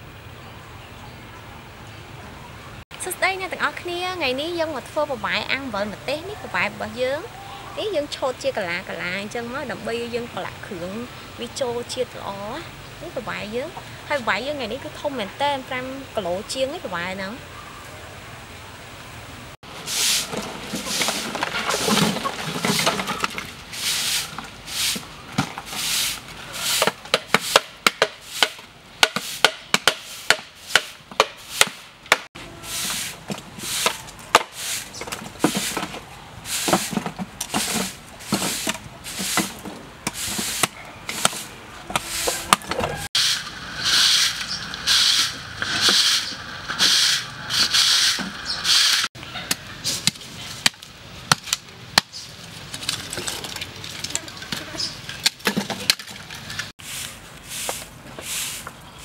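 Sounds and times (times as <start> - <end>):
broom sweeping dirt floor: 19.6 - 49.1, 49.8 - 50.6, 56.4 - 59.0
cleaver chopping charcoal: 26.6 - 32.3, 33.3 - 36.0, 36.6 - 42.8, 49.4 - 52.2.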